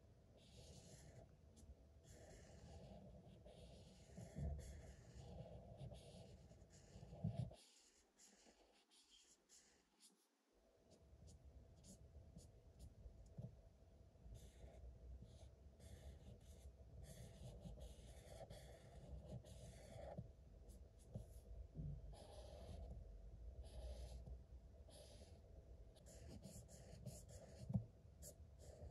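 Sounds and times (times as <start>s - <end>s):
marker scratching on paper: 0.4s - 1.3s, 2.0s - 10.2s, 14.4s - 21.4s, 22.1s - 23.0s, 23.6s - 24.3s, 24.9s - 25.4s, 26.0s - 28.9s.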